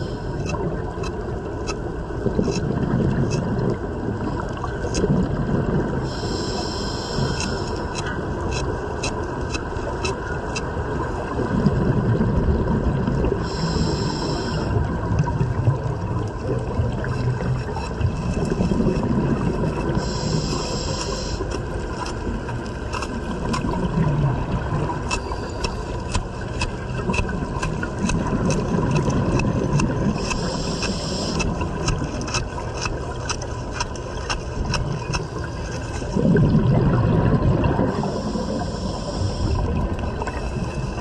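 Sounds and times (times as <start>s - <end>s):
hiss of air drawn in: 6.1s - 7.7s, 13.4s - 14.7s, 20.0s - 21.4s, 38.0s - 39.6s
rumbling exhaust bubbles: 11.0s - 21.7s, 22.3s - 41.0s
steady hum: 16.7s - 41.0s.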